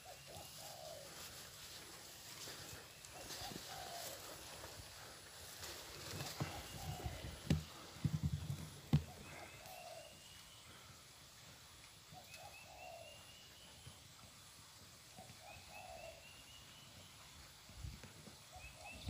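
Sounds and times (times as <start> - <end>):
low bird call: 6.2 - 7.8, 9.0 - 10.9.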